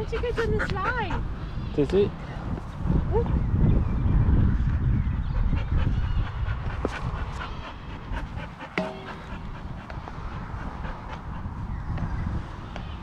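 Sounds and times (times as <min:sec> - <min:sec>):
dog panting: 0:00.0 - 0:01.5, 0:05.2 - 0:11.7.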